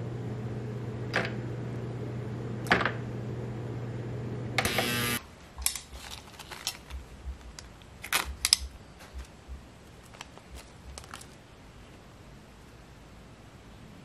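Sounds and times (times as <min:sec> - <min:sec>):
small metal parts clicking: 0:05.6 - 0:07.0, 0:07.6 - 0:08.7.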